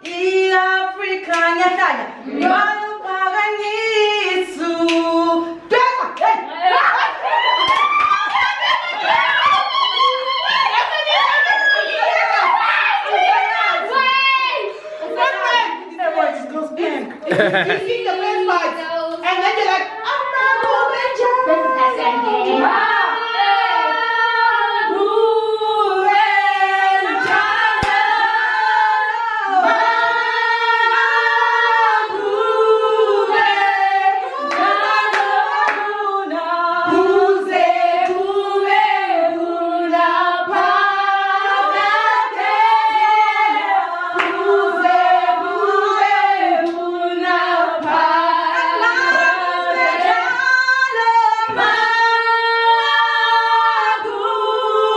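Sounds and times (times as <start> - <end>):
women singing unaccompanied: 0.0 - 54.9
hand clapping: 7.6 - 8.6, 27.2 - 28.0.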